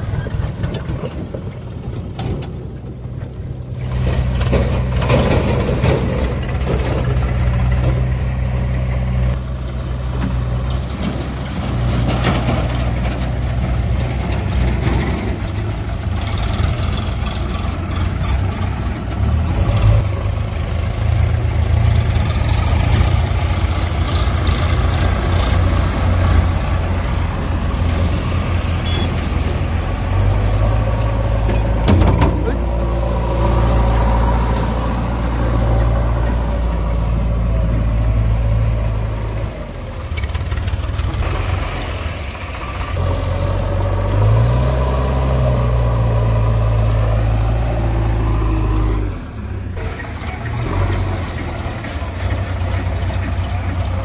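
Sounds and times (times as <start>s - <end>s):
backhoe loader diesel engine: 0.0s - 54.0s
tractor diesel engine: 0.0s - 54.0s.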